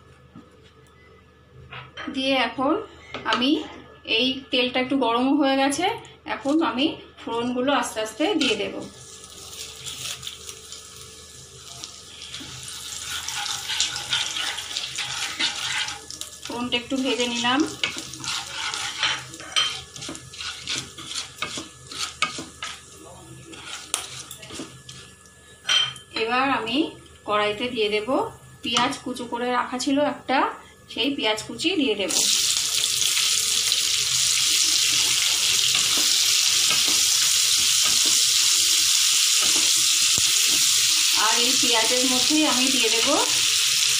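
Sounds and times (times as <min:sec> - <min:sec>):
spices sizzling in hot oil: 0:07.8 - 0:26.0, 0:32.0 - 0:43.9
wooden spatula stirring: 0:12.4 - 0:16.2, 0:17.0 - 0:25.1.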